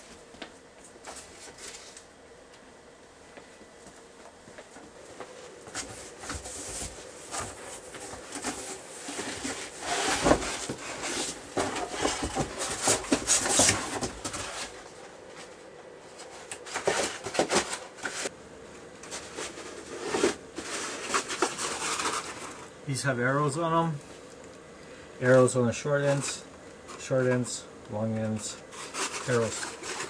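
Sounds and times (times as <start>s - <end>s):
cardboard rustling and scraping: 0.8s - 2.1s, 5.5s - 22.8s, 28.3s - 30.0s.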